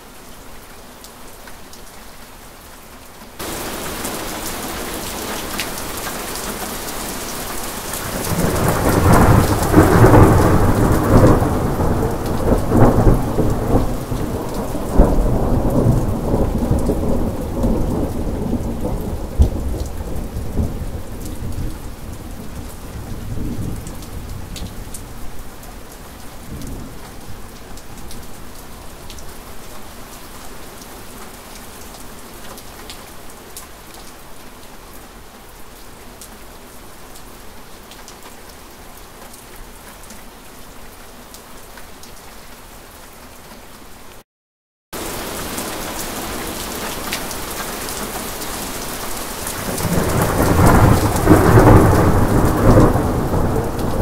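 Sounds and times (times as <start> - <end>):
steady rain: 0.0 - 44.2, 45.0 - 54.0
thunder cracking and rumbling: 8.0 - 21.7, 49.6 - 54.0.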